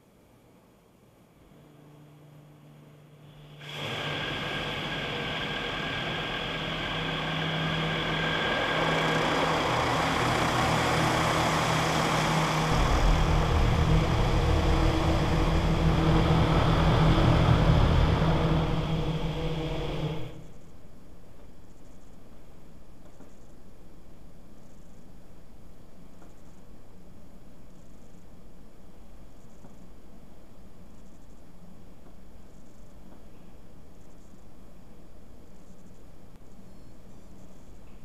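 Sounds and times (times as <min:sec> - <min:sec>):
faint machine hum: 0:00.0 - 0:38.0
deep rumble: 0:01.8 - 0:20.6.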